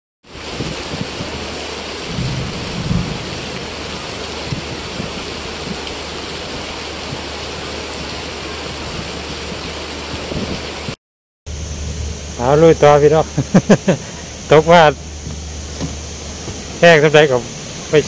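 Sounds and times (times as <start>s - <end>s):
heavy rain pouring: 0.2s - 18.0s
low rumble: 0.8s - 7.3s.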